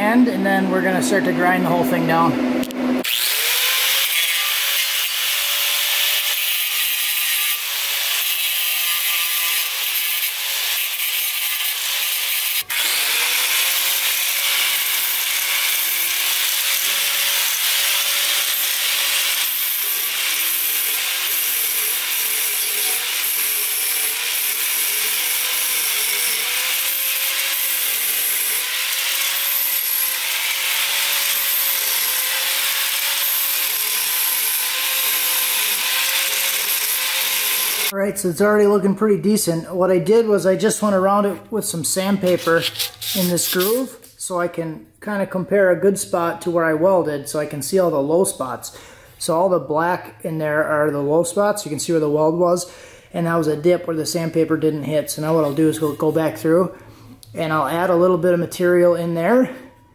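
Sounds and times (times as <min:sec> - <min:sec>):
angle grinder grinding metal: 0:00.2 - 0:38.0, 0:42.0 - 0:44.1.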